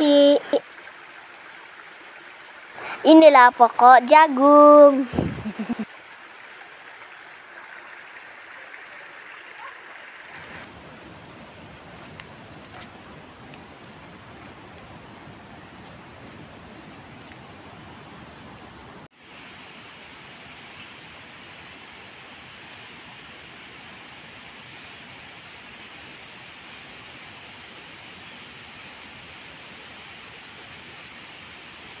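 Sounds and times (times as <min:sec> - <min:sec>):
outdoor rushing hiss: 0:00.0 - 0:09.0
thin high pulsing tone: 0:10.4 - 0:19.1.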